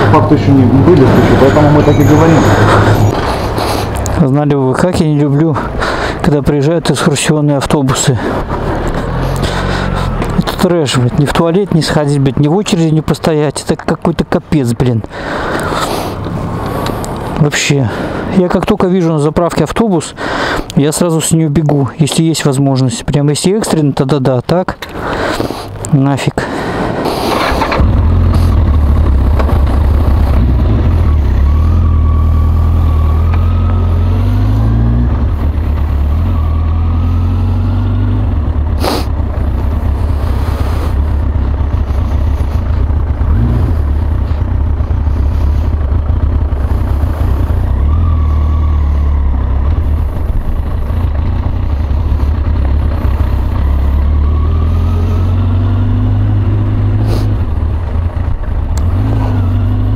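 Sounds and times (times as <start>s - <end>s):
motorcycle engine accelerating: 0.0s - 4.7s, 7.8s - 12.9s, 27.3s - 59.9s.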